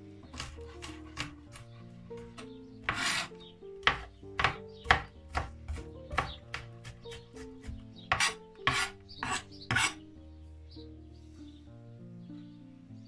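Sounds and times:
knife chopping on cutting board: 0:00.3 - 0:01.6, 0:02.2 - 0:10.0.

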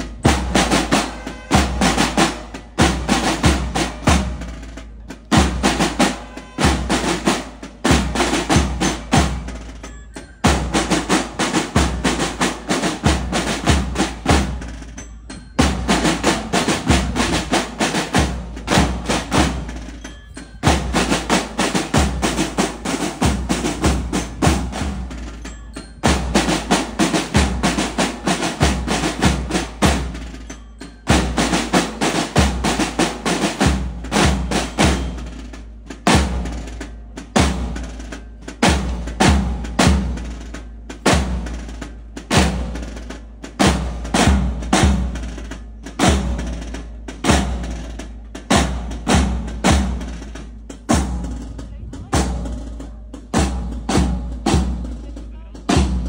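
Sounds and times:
snare drumming and rolls: 0:00.0 - 0:09.8, 0:15.6 - 0:56.0
bass drum beats: 0:48.5 - 0:56.0.

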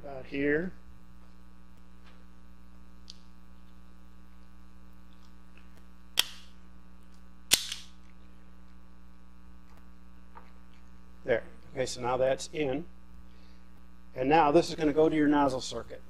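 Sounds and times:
steady electrical hum: 0:00.0 - 0:16.0
tubing cutter snapping: 0:06.2 - 0:06.5, 0:07.5 - 0:07.9.

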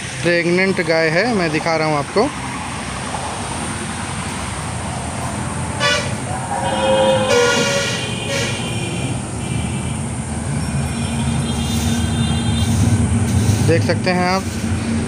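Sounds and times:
low rumble of traffic: 0:00.0 - 0:15.0
vehicle horns honking: 0:05.8 - 0:10.1.

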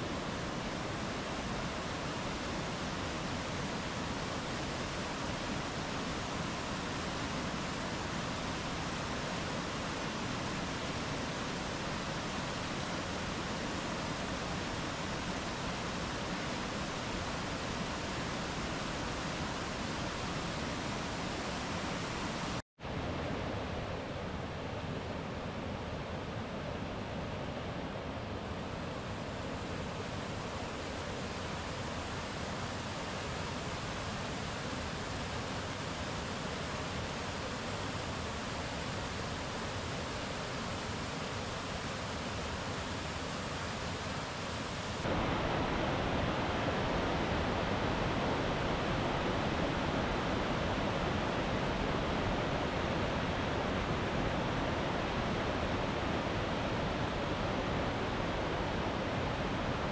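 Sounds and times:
waterfall rushing: 0:44.9 - 0:59.9.

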